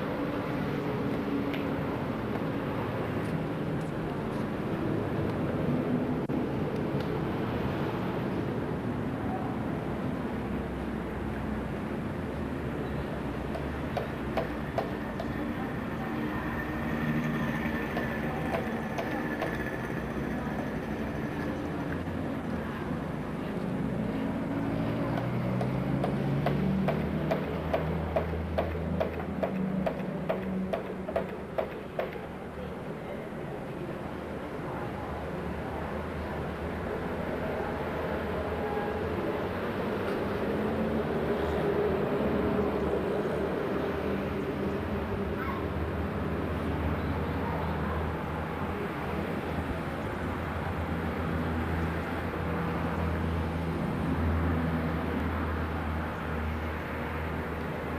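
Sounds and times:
sharp ticks: 0:17.6 - 0:22.0, 0:25.2 - 0:32.3.

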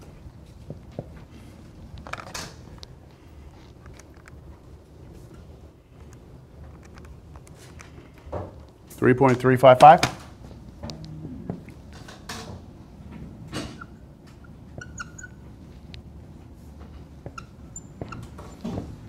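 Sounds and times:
low room hum: 0:00.0 - 0:19.0
pen tapping and squeaking on whiteboard: 0:13.6 - 0:15.4, 0:17.2 - 0:18.8.

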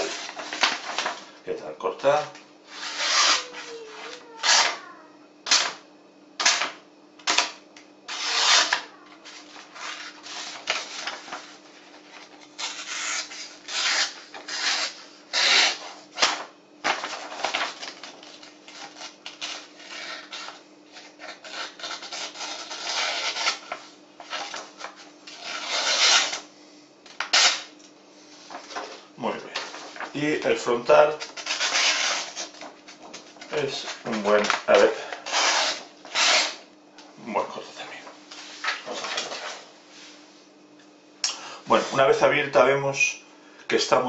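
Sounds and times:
paper rustling: 0:00.0 - 0:01.3, 0:08.1 - 0:26.4, 0:28.5 - 0:36.5, 0:38.0 - 0:39.7
knife slicing paper: 0:02.7 - 0:04.8, 0:08.1 - 0:11.4, 0:12.6 - 0:26.4, 0:31.2 - 0:32.7, 0:33.6 - 0:36.6.

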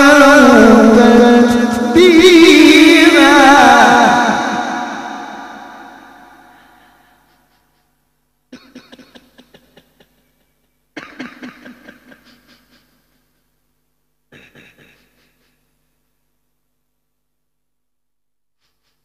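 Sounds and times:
man coughing through microphone: 0:08.5 - 0:10.4, 0:11.0 - 0:13.0, 0:14.3 - 0:15.6.

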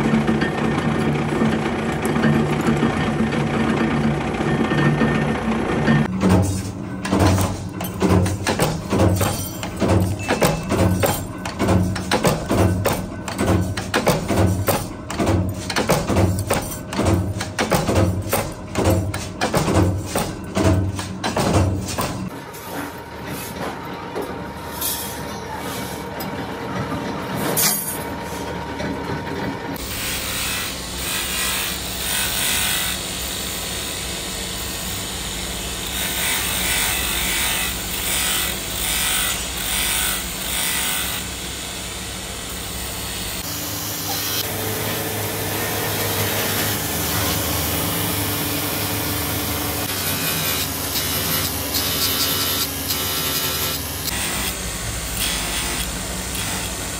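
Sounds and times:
grinding wheel grinding steel: 0:29.2 - 0:56.9.

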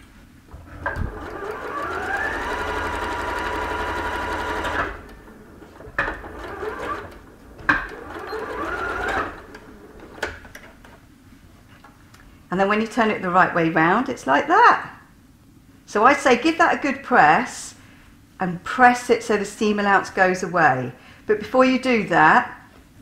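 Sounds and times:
sewing machine motor whining: 0:00.5 - 0:10.6.

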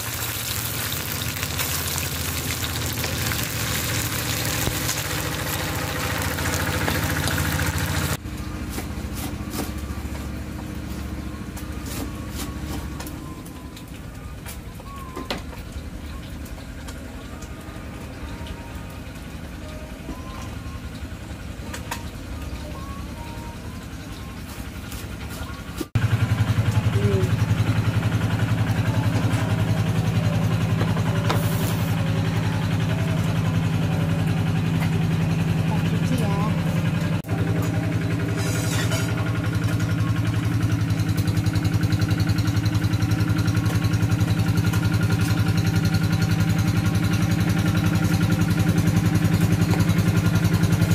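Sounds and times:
fish sizzling in hot oil: 0:00.0 - 0:08.2, 0:38.0 - 0:50.8
low mechanical hum: 0:00.0 - 0:50.9
small engine idling: 0:00.0 - 0:50.9.

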